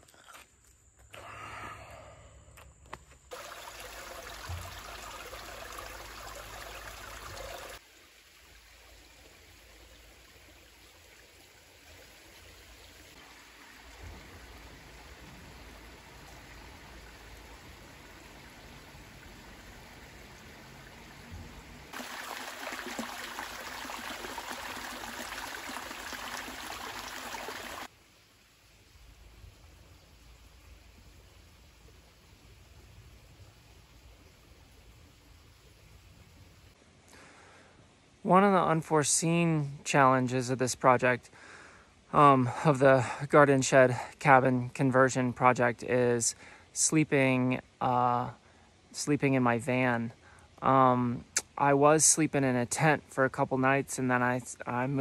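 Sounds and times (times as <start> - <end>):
running water rushing: 3.3 - 27.9.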